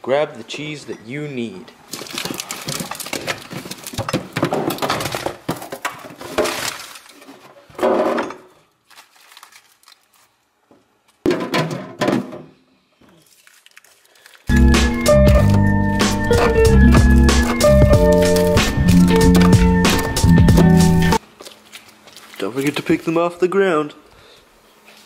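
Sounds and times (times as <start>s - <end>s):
plastic packages rustling: 1.8s - 7.8s, 8.5s - 11.2s, 13.0s - 23.2s
packages knocking on wooden floor: 2.0s - 6.6s, 14.8s - 21.2s.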